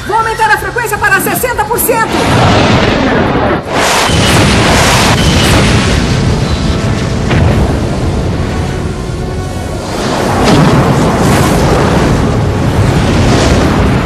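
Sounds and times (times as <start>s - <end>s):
rumbling blast: 2.0s - 14.0s
cartoon blast explosion: 2.1s - 7.9s.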